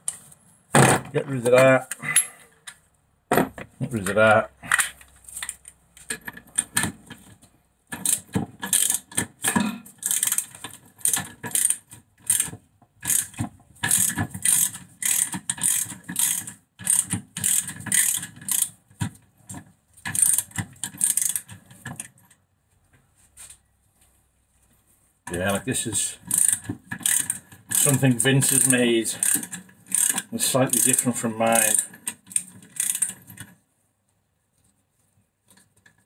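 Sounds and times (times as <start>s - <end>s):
ratchet wrench clicking: 8.0s - 9.2s, 10.0s - 18.8s, 20.1s - 21.5s, 26.3s - 33.4s.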